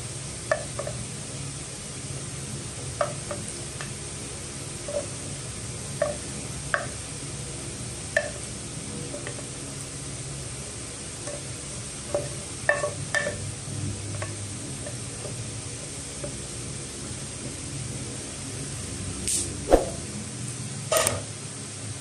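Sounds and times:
food sizzling in a pan: 11.0s - 13.4s.

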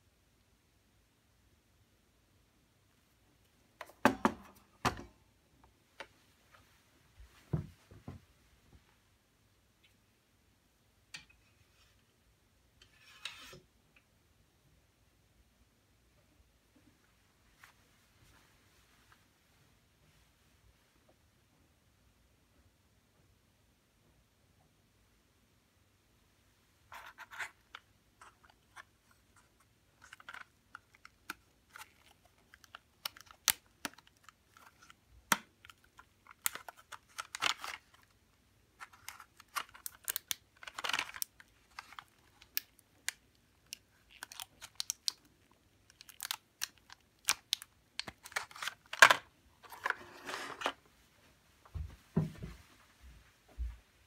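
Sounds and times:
plastic packaging crackling: 30.0s - 38.2s, 38.8s - 49.9s.

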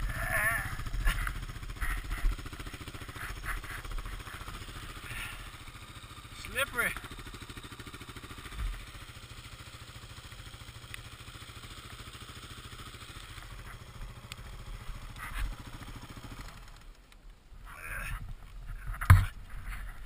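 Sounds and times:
dirt bike engine idling: 0.0s - 20.0s
knocks of bike being handled: 18.9s - 19.4s.

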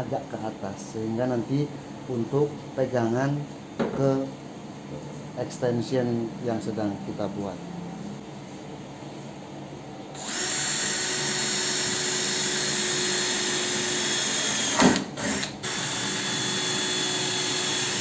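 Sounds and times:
cordless drill boring: 10.2s - 18.0s.

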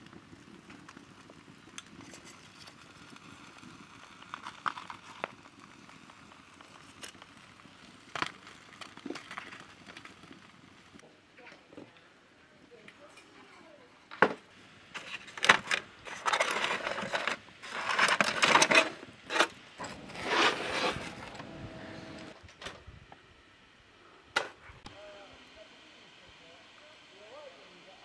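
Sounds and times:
aluminium foil crinkling: 1.7s - 11.0s, 15.0s - 19.6s.

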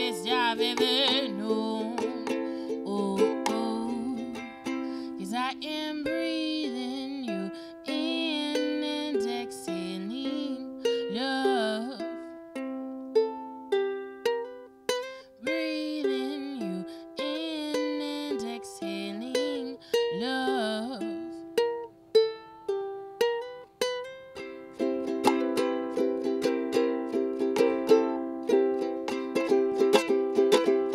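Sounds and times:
woman singing: 0.0s - 12.3s, 15.3s - 21.4s
ukulele strummed and plucked: 0.0s - 30.9s.

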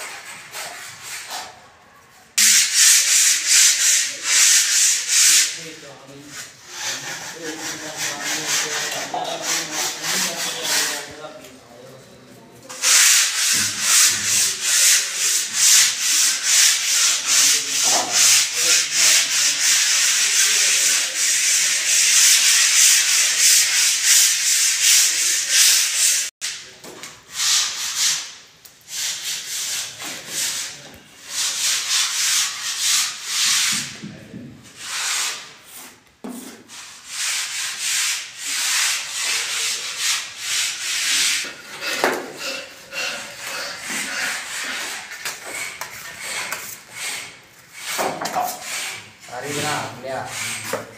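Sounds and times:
sandpaper rasping on plaster: 0.0s - 1.6s, 2.4s - 11.5s, 12.6s - 26.6s, 27.3s - 34.0s, 34.6s - 50.9s.

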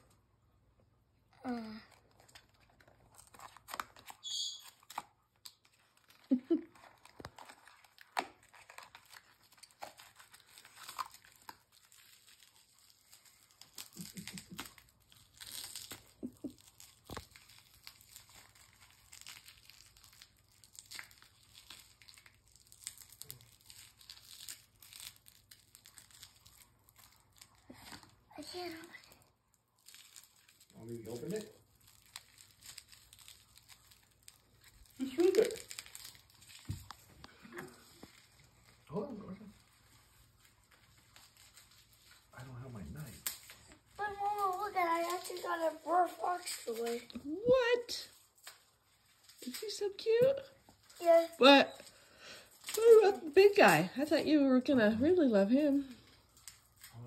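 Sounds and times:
packaging crinkling and tearing: 1.4s - 57.0s.

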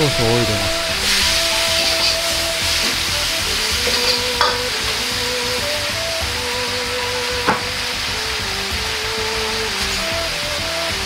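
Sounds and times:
food sizzling in a wok: 0.4s - 11.0s
metal ladle scraping a wok: 0.8s - 5.6s
ladle knocking against wok: 3.8s - 4.9s.

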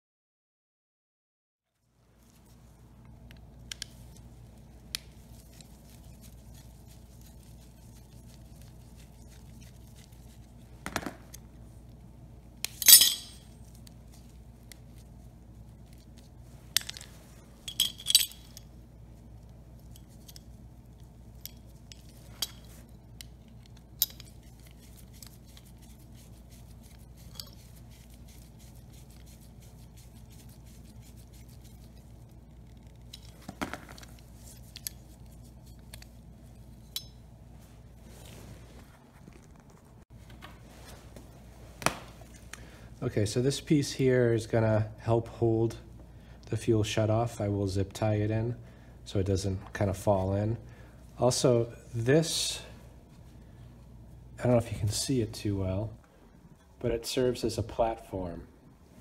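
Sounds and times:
faint steady low hum: 1.7s - 59.0s
parts set down on concrete: 10.8s - 11.2s, 33.4s - 34.1s.

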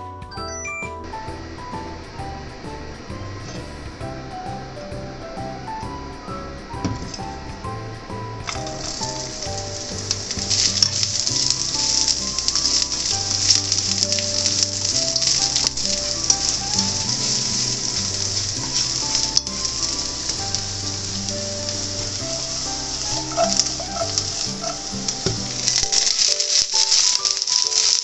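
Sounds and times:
carrots sizzling in hot oil: 1.2s - 28.0s.

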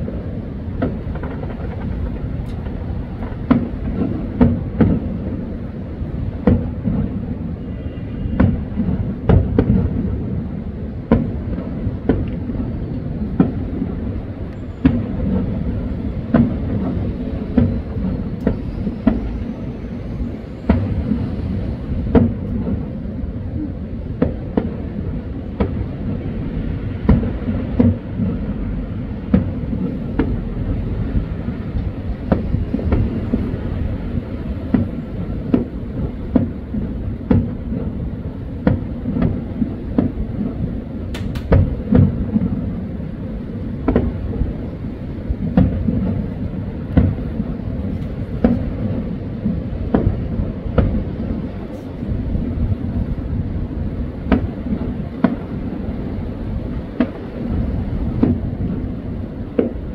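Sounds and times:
fireworks bursting: 0.0s - 59.9s.

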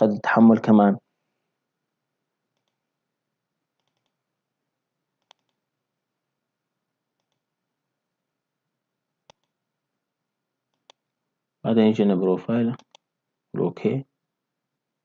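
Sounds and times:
faint computer mouse clicks: 2.5s - 2.8s, 3.8s - 4.2s, 5.2s - 5.6s, 7.2s - 7.5s, 9.2s - 9.6s, 10.7s - 11.0s, 12.8s - 13.1s.

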